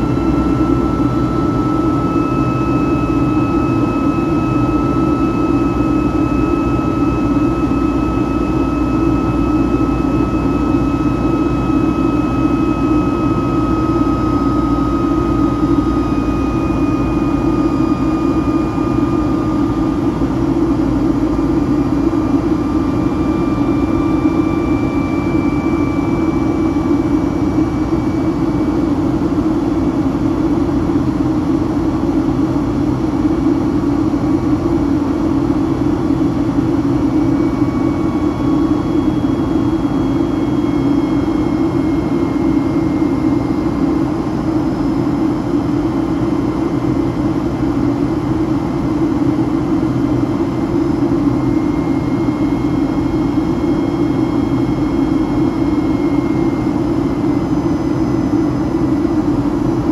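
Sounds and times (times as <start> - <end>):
jet engine drone in cabin: 0.0 - 59.9.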